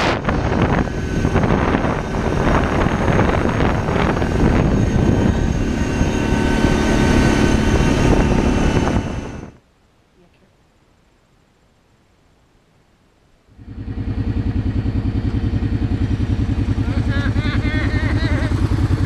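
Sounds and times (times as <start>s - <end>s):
atv engine running: 0.0s - 9.6s, 13.5s - 19.0s
wind rumble on microphone: 0.0s - 9.6s.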